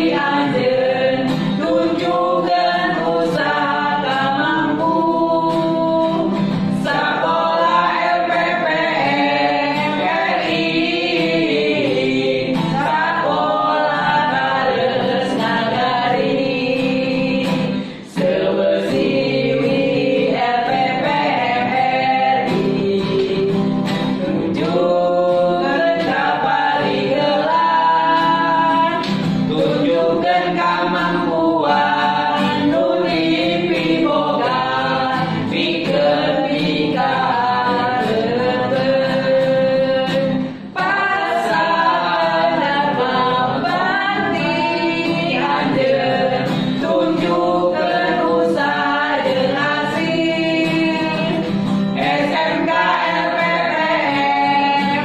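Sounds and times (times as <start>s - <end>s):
acoustic guitar: 0.0s - 55.0s
group singing in unison: 0.0s - 55.0s.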